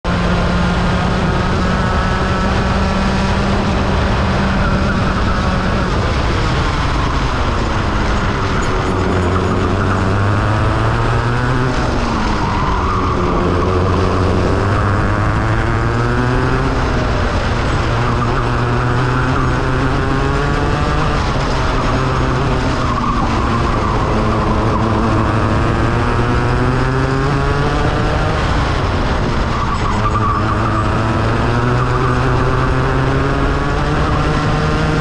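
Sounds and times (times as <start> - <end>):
kart engine revving: 0.0 - 35.0.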